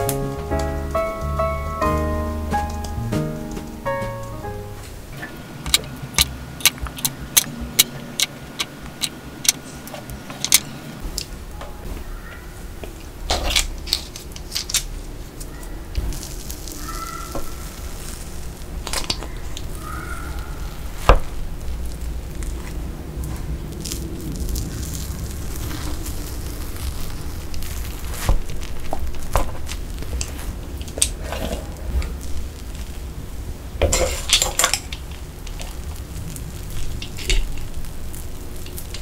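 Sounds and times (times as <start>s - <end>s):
sharp clicks and taps: 5.7s - 10.6s.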